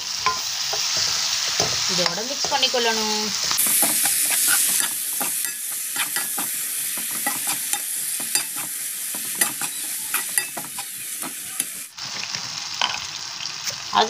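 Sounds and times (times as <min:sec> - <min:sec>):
vegetables sizzling in a frying pan: 0:00.0 - 0:14.0
spatula scraping and tapping pan: 0:03.6 - 0:11.8.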